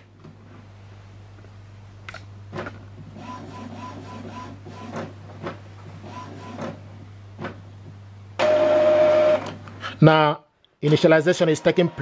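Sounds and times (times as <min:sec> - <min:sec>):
printer mechanical clacks: 0:02.5 - 0:09.6
printer motor whirring: 0:03.1 - 0:07.5, 0:08.4 - 0:09.6, 0:11.0 - 0:12.0.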